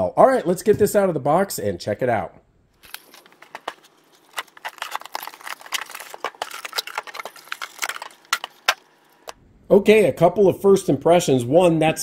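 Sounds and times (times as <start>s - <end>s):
cardboard packaging rustling: 2.8s - 9.4s.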